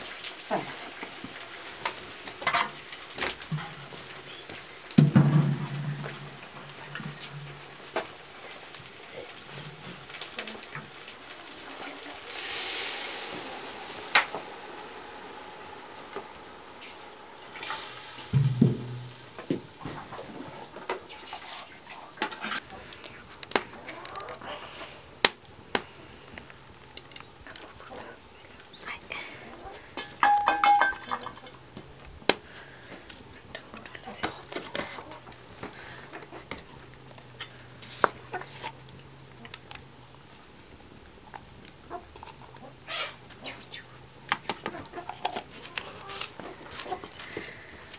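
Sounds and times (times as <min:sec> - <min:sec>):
pots and utensils clinking: 0:01.8 - 0:03.8, 0:16.8 - 0:21.0, 0:30.0 - 0:31.6
water pouring into metal pot: 0:09.4 - 0:19.8.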